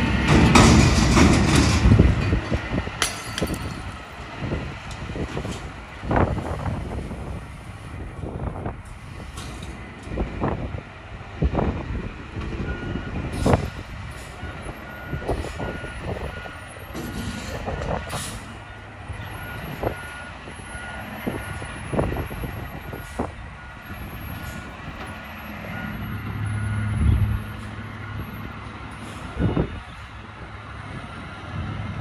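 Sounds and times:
sharp metal clanks: 0:03.0 - 0:03.9
reversing alarm beeps: 0:12.6 - 0:13.7, 0:14.4 - 0:28.5, 0:29.1 - 0:30.0, 0:30.9 - 0:31.6.

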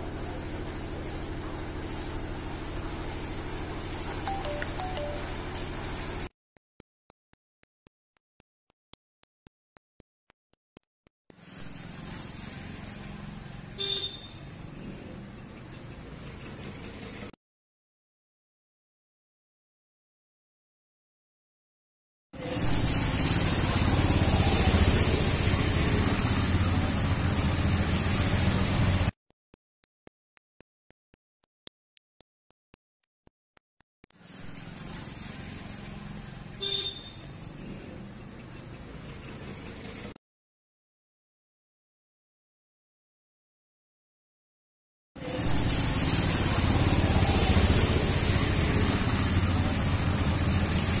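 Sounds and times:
motorbike engines passing: 0:22.4 - 0:29.1, 0:45.2 - 0:51.0
tyres swishing through water: 0:22.4 - 0:29.1, 0:45.2 - 0:51.0.

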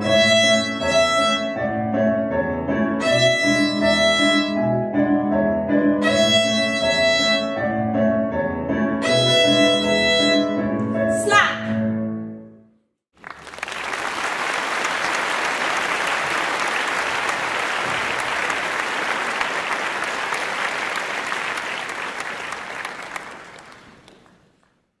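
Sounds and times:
audience applauding: 0:13.2 - 0:24.9.

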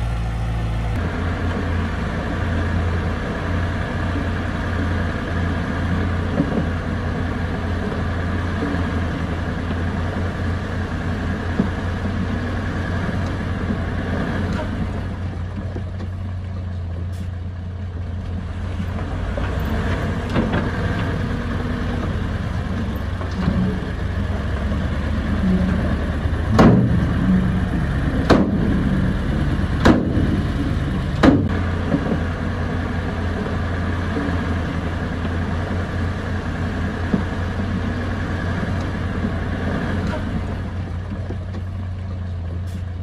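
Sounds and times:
sharp knocks: 0:26.5 - 0:27.0, 0:28.2 - 0:28.8, 0:29.8 - 0:30.4, 0:31.2 - 0:32.2.

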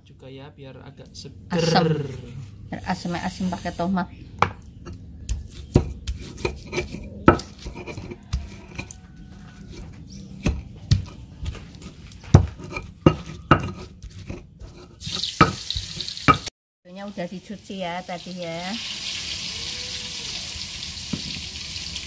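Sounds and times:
stone pestle knocking in mortar: 0:04.4 - 0:09.0, 0:09.7 - 0:14.8.

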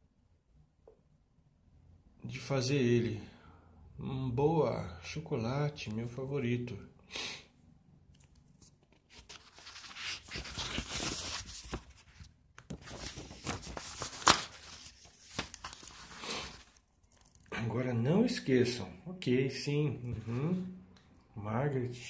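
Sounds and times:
paper pages rustling: 0:08.2 - 0:17.5.

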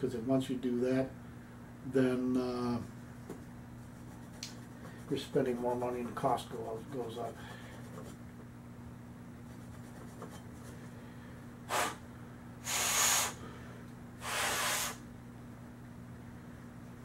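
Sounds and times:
breath blown through barrel: 0:11.7 - 0:12.0, 0:12.6 - 0:13.5, 0:14.2 - 0:15.0.

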